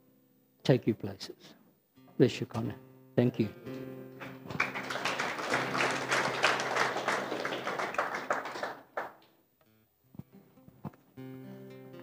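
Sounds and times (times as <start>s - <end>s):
crowd clapping: 4.2s - 9.3s.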